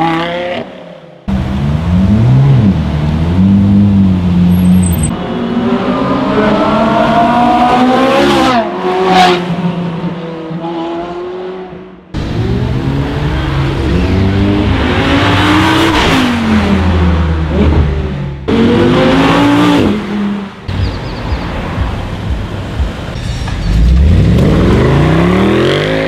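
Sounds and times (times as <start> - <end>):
sports car engines revving: 0.0 - 26.0
sports car revving past: 23.7 - 26.0.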